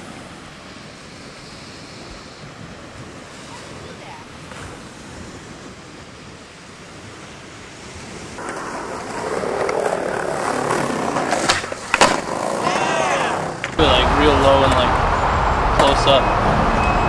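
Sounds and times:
faint wind: 0.0s - 17.0s
skateboard wheels rolling on concrete: 0.0s - 17.0s
surf: 0.0s - 17.0s
skateboard clacks: 8.4s - 14.0s.

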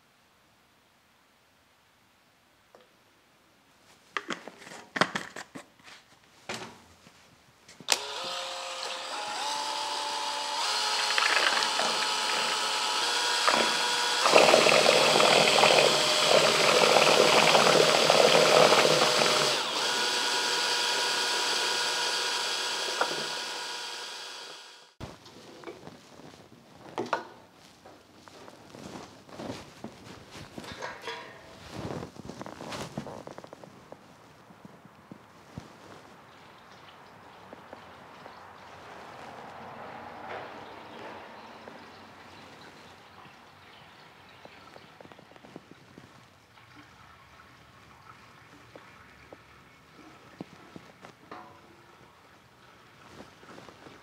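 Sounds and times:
electric drill mixing in bucket: 7.9s - 25.0s.

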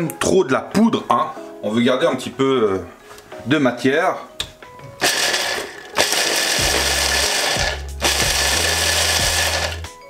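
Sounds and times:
electric chopper grinding nuts: 5.0s - 9.9s.

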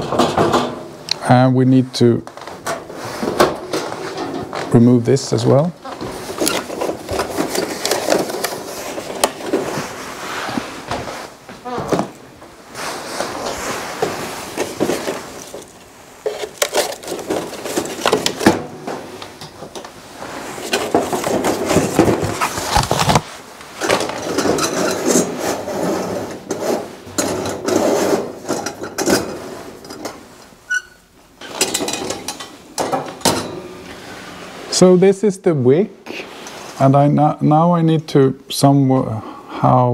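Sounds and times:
cardboard rustling and scraping: 5.8s - 19.4s, 20.0s - 28.4s.

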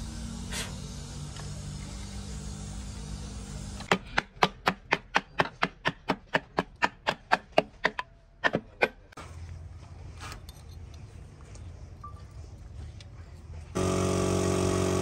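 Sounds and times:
low machine hum: 11.1s - 15.0s.

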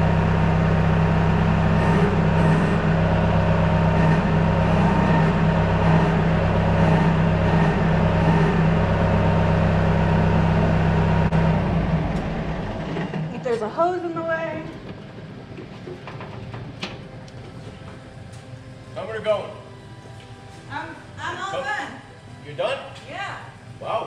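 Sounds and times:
tractor engine humming: 0.0s - 19.0s.

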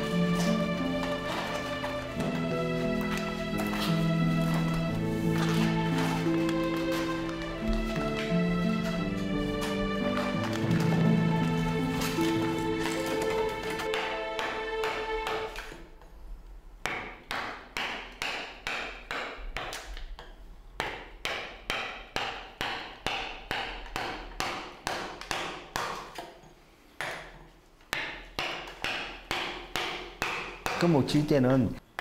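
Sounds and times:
mallet knocking chisel into wood: 13.9s - 15.8s, 16.8s - 26.4s, 27.0s - 31.0s.

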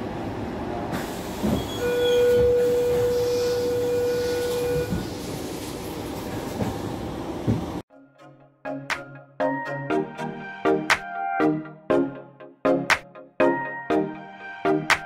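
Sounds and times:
train rumble: 0.0s - 7.8s.

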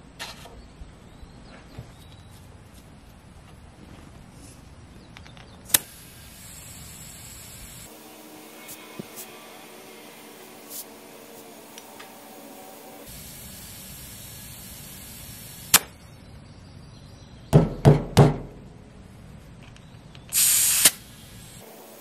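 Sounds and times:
air hissing into a tire: 5.7s - 15.9s, 20.3s - 22.0s
loud air blasts: 5.7s - 16.0s, 20.3s - 22.0s.

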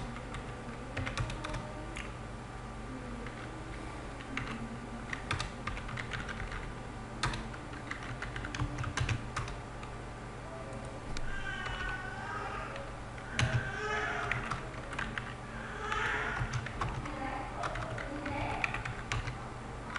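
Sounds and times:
keyboard typing: 0.0s - 2.1s, 4.2s - 9.6s, 11.6s - 12.0s, 12.8s - 19.9s
steady low hum: 0.0s - 19.9s.

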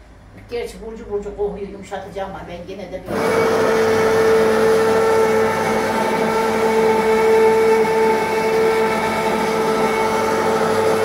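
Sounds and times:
immersion blender whining: 3.1s - 11.0s.

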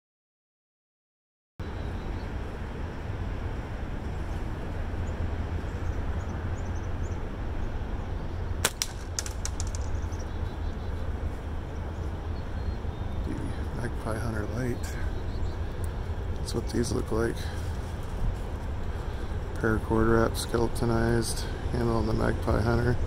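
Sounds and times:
low outdoor rumble: 1.6s - 23.0s
slingshot snap: 8.6s - 10.0s
bird chirps: 9.1s - 16.9s.

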